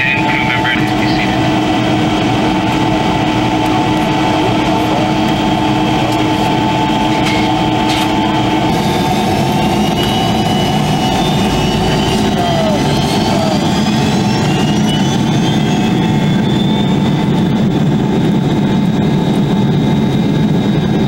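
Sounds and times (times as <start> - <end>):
jet engines running in cabin: 0.0 - 21.0
rising engine whine: 0.0 - 21.0.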